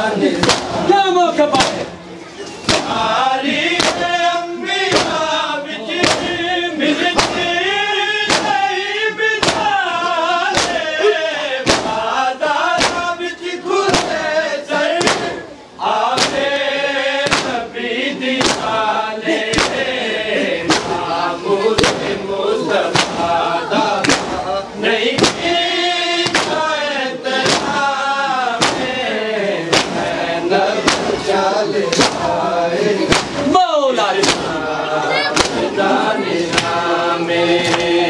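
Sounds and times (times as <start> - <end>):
men chanting in unison: 0.0 - 1.9, 2.7 - 38.0
chest-beating slaps: 0.4 - 0.9, 1.5 - 1.9, 2.6 - 3.0, 3.8 - 4.1, 4.9 - 5.3, 6.0 - 6.4, 7.1 - 7.5, 8.2 - 8.7, 9.4 - 9.8, 10.5 - 10.9, 11.6 - 12.0, 12.8 - 13.2, 13.8 - 14.3, 14.9 - 15.4, 16.1 - 16.5, 17.2 - 17.6, 18.4 - 18.8, 19.4 - 19.9, 20.6 - 21.0, 21.7 - 22.2, 22.8 - 24.5, 25.1 - 26.7, 27.3 - 27.9, 28.5 - 29.0, 29.6 - 30.1, 30.7 - 31.3, 31.9 - 32.3, 33.0 - 33.5, 34.1 - 34.6, 35.3 - 35.7, 36.5 - 36.8, 37.6 - 38.0.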